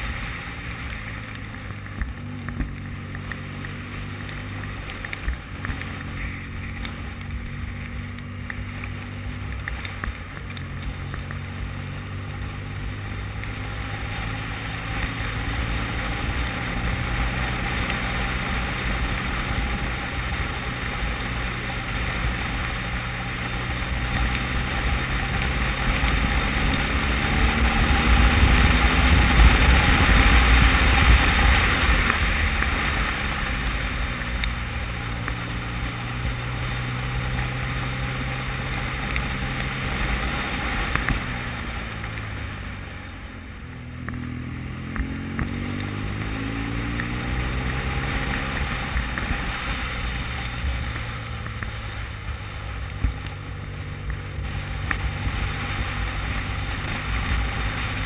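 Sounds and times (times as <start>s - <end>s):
motorcycle engine running: 0.0s - 58.0s
wind rush on microphone: 21.4s - 37.6s.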